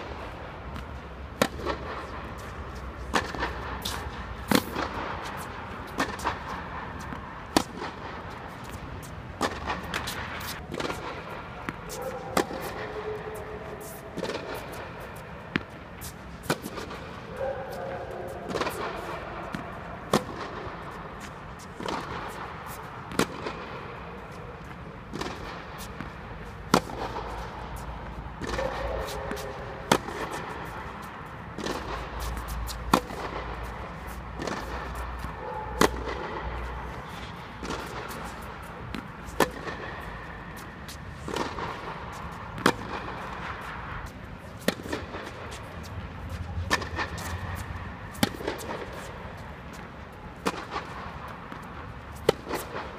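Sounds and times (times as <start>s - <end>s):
tennis balls struck by rackets: 0.0s - 52.9s.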